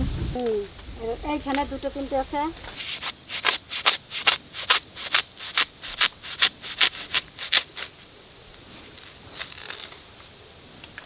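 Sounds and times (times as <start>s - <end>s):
scraping in dry leaf litter: 2.7s - 10.2s.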